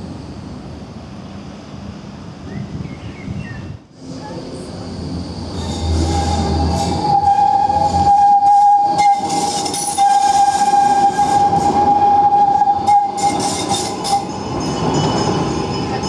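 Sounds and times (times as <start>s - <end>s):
tram wheels squealing: 2.4s - 16.0s.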